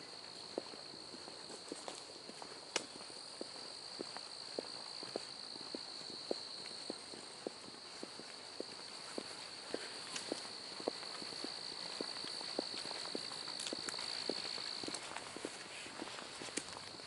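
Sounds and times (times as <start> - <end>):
footsteps on a trail: 0.0 - 17.0
night insects chirping: 0.0 - 17.0.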